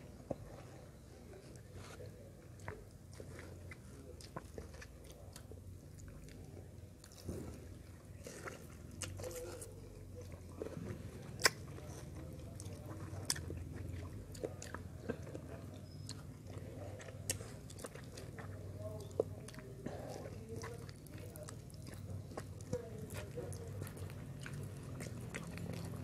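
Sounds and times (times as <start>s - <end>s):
person chewing wet fruit: 0.0s - 26.0s
mouth smacks and clicks: 11.3s - 11.8s.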